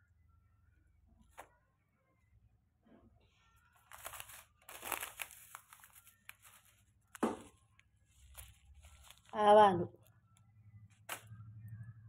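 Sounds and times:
plastic bags crinkling: 0:03.7 - 0:10.1, 0:11.0 - 0:11.4.

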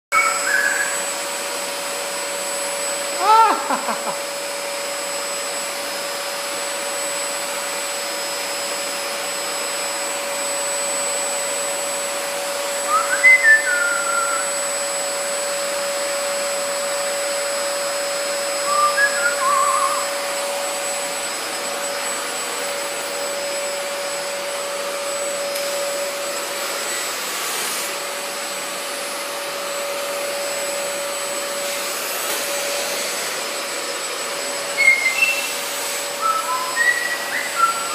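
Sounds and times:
parrot whistling: 0:00.1 - 0:01.1, 0:12.9 - 0:14.5, 0:18.6 - 0:20.2, 0:34.8 - 0:35.6, 0:36.2 - 0:37.9.

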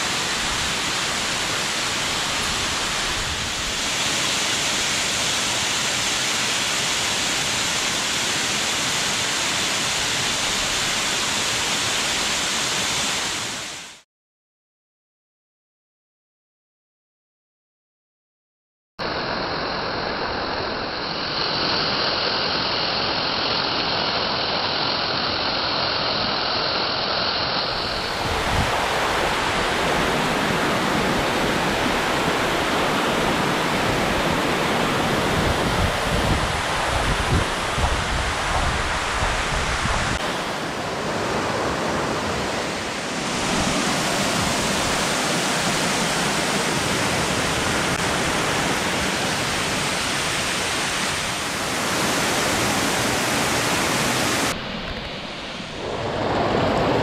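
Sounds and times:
waterfall rushing and splashing: 0:00.0 - 0:14.0, 0:19.0 - 0:57.0.

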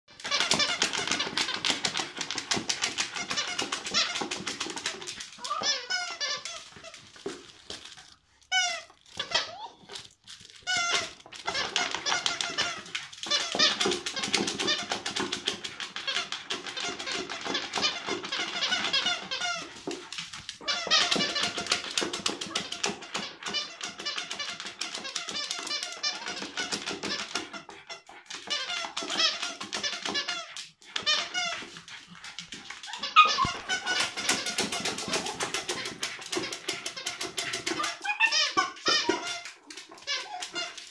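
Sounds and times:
squeaky dog toy squeaking: 0:00.1 - 0:40.9.

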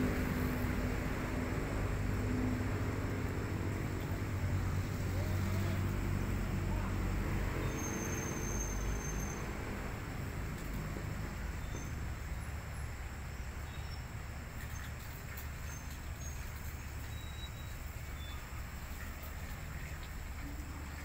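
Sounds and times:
faint high insect chirping: 0:07.6 - 0:09.8, 0:11.1 - 0:21.0.

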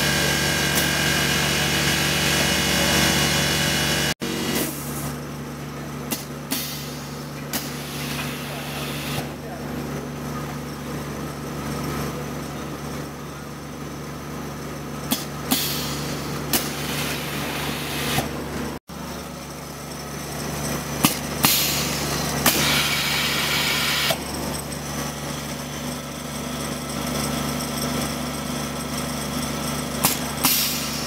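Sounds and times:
machine hissing: 0:21.4 - 0:24.2.

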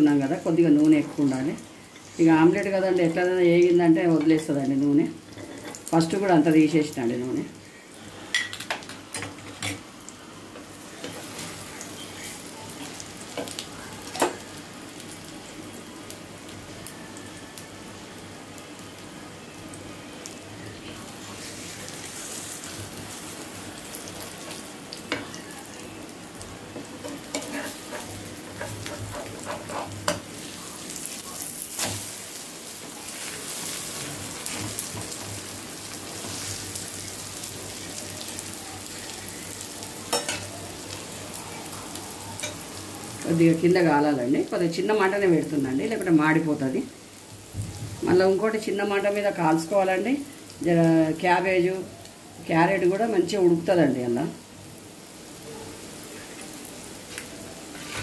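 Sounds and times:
omelette sizzling in oil: 0:00.0 - 0:58.0
wooden spatula scraping pan: 0:27.1 - 0:30.2, 0:57.7 - 0:58.0.

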